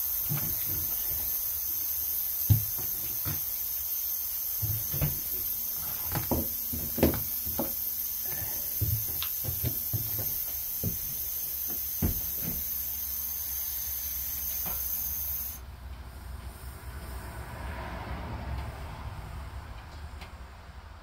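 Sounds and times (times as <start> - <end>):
compressed air hissing: 0.0 - 15.7, 16.5 - 17.4.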